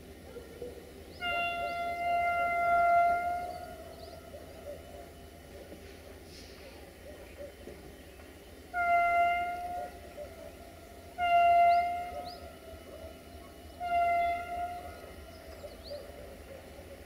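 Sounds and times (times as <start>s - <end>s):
locomotive horn blasts: 1.1s - 4.4s, 8.7s - 16.0s.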